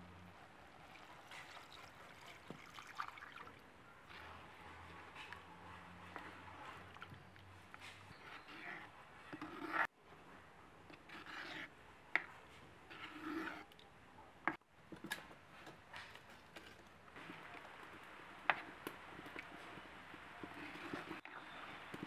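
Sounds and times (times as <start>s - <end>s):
ladle scraping pot: 4.1s - 9.9s, 10.9s - 13.8s, 20.4s - 22.0s.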